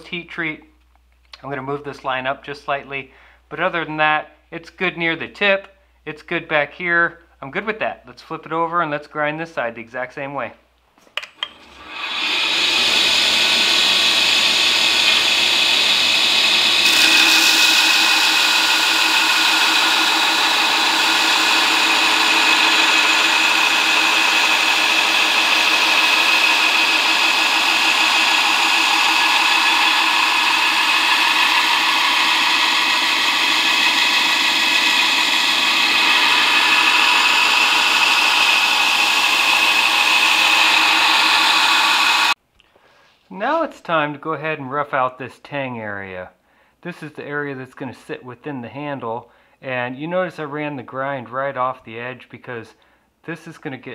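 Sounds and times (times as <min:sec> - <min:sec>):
belt grinder grinding steel: 0:11.4 - 0:42.4.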